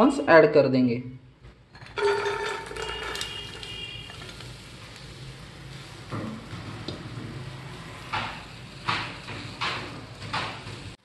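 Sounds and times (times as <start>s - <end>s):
pan ringing: 1.8s - 4.2s
corn kernels clattering into pan: 1.8s - 4.7s
hiss of kernels in hot pan: 3.2s - 6.1s, 7.0s - 11.0s.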